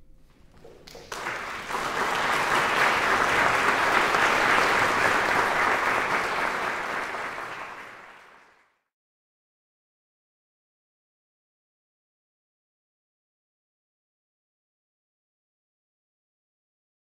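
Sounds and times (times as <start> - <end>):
audience applauding: 0.7 - 8.8.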